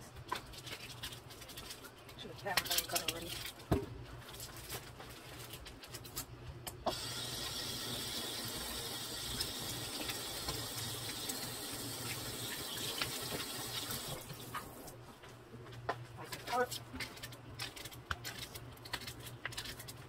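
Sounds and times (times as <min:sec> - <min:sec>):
tap running water into sink: 0:06.9 - 0:14.7.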